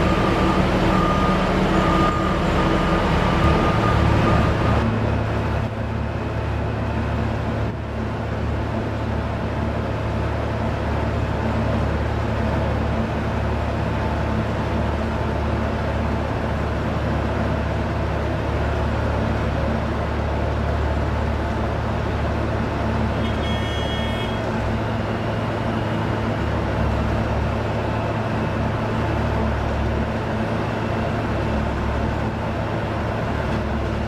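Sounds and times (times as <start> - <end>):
reversing alarm beeping: 0.0 - 4.9, 23.2 - 24.5
diesel drone: 0.0 - 34.0.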